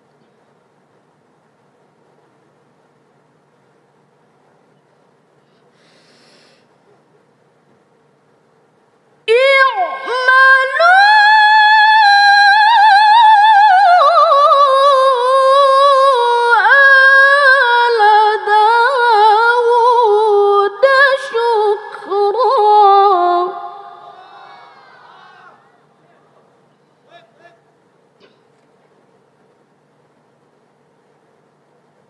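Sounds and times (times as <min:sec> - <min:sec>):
low background hiss: 0:00.0 - 0:32.0
woman reciting melodically: 0:09.3 - 0:24.2.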